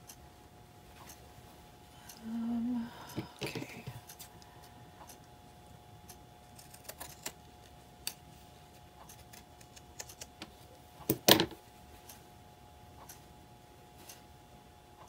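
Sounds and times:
scissors snipping fabric: 0:06.5 - 0:07.4, 0:09.0 - 0:10.3.

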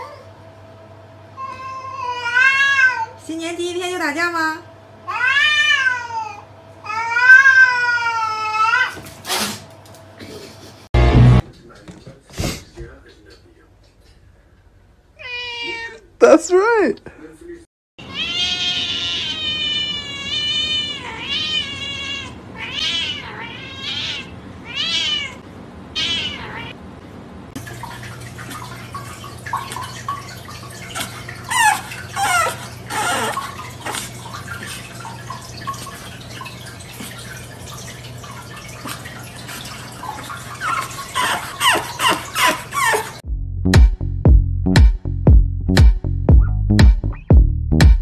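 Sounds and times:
cat yowling: 0:01.4 - 0:03.2, 0:05.1 - 0:09.0, 0:15.2 - 0:16.0, 0:18.0 - 0:26.8, 0:30.9 - 0:34.0, 0:40.5 - 0:43.2
low hum: 0:11.0 - 0:11.4, 0:43.2 - 0:48.0.

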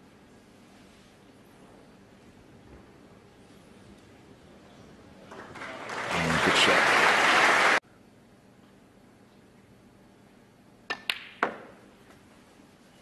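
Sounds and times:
applause: 0:05.3 - 0:07.8.

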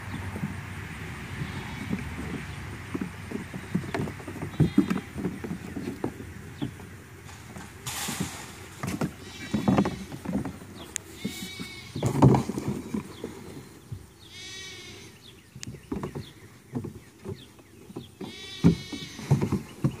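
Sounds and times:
goat kids bleating: 0:01.3 - 0:02.4, 0:03.5 - 0:05.4, 0:09.0 - 0:10.4, 0:11.0 - 0:12.2, 0:14.2 - 0:15.2, 0:18.2 - 0:19.7
small hooves thumping on plastic: 0:01.4 - 0:14.2, 0:15.5 - 0:20.0.

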